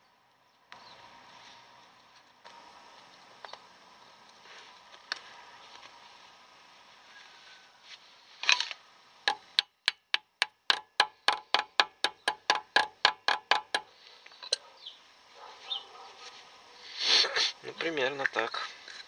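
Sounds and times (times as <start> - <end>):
hammer tapping metal: 9.3 - 13.9.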